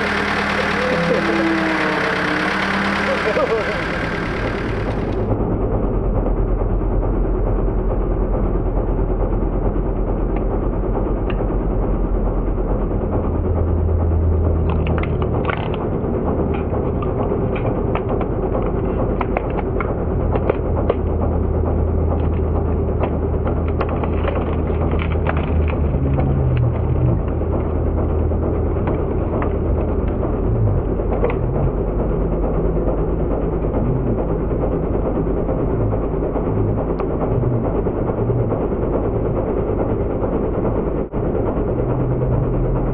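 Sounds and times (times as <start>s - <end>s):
road roller engine humming: 0.0s - 42.9s
clicks and rattles: 14.6s - 21.2s, 22.1s - 27.7s.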